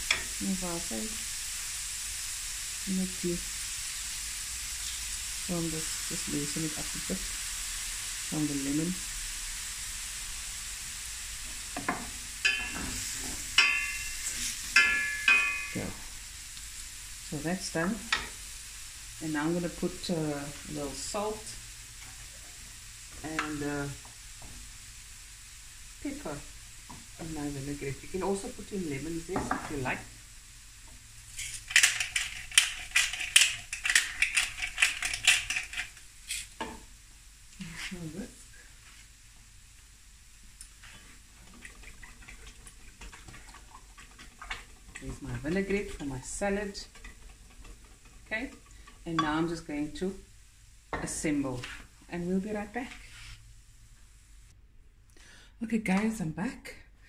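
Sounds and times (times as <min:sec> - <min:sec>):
prawns sizzling in pan: 0:00.0 - 0:54.6
wooden spoon stirring: 0:40.7 - 0:49.5.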